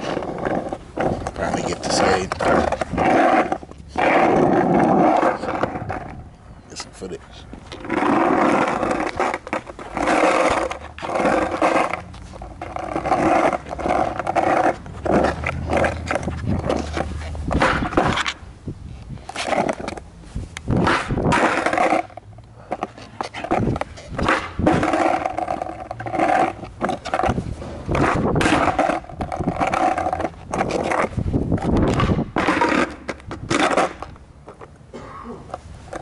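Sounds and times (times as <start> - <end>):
skateboard wheels rolling on asphalt: 0.0 - 36.0
skateboard clacks and knocks: 12.6 - 18.4, 20.8 - 34.7.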